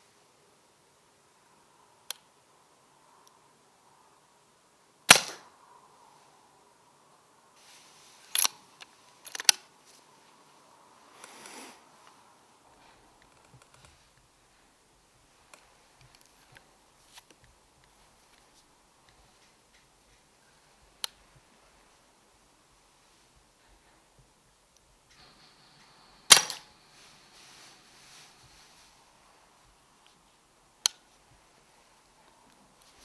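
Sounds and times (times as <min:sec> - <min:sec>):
air rifle shot: 0:05.1 - 0:05.5, 0:26.2 - 0:26.7
rifle action clicks: 0:26.3 - 0:26.7.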